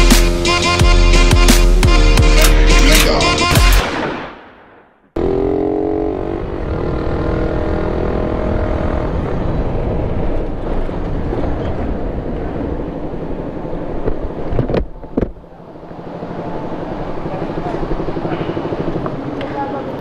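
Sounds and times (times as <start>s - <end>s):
wind and road noise: 3.0s - 20.0s
motorcycle engine running: 5.2s - 9.8s, 16.2s - 20.0s.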